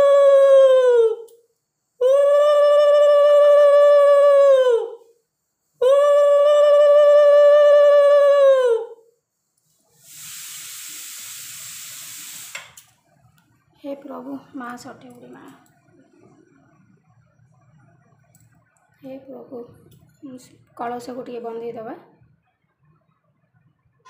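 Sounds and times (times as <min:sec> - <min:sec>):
steady hiss: 0:09.2 - 0:13.0.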